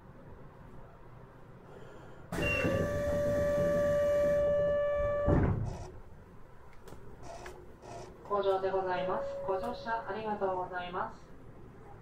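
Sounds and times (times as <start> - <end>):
sliding doors shutting thud: 2.3 - 5.8
train door buzzer: 2.3 - 5.9.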